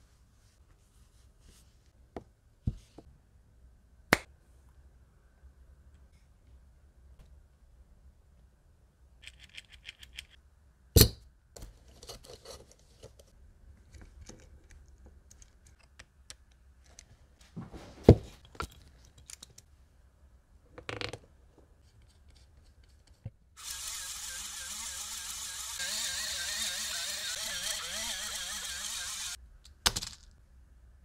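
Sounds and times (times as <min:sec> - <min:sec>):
small electric motor whirring: 0:23.6 - 0:29.4.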